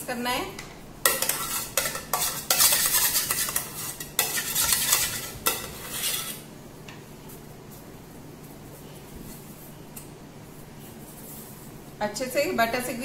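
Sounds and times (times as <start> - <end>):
butter rubbing inside metal tin: 1.2 - 6.4.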